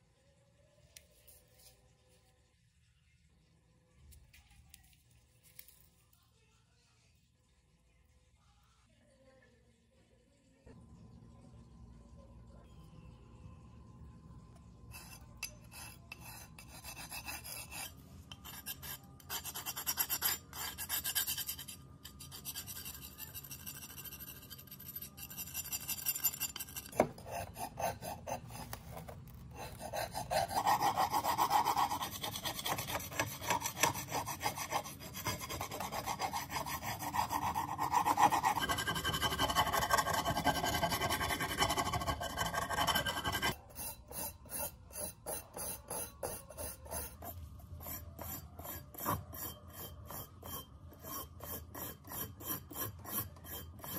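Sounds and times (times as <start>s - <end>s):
metal scraping on metal: 14.9s - 53.9s.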